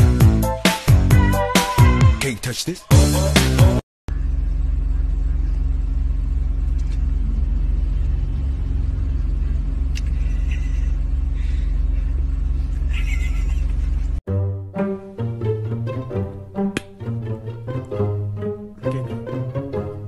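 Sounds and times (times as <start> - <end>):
car engine rumble from inside cabin: 4.1 - 14.2.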